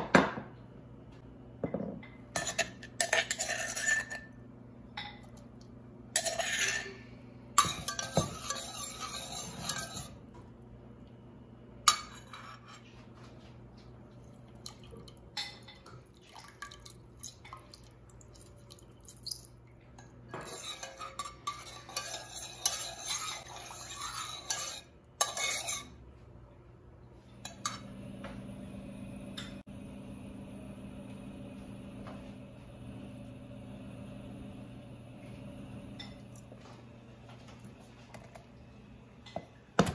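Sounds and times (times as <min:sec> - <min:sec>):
metal spoon scraping saucepan: 0:02.4 - 0:04.4, 0:06.2 - 0:10.2, 0:11.9 - 0:12.9, 0:20.3 - 0:26.0
steady low hum: 0:19.7 - 0:39.9.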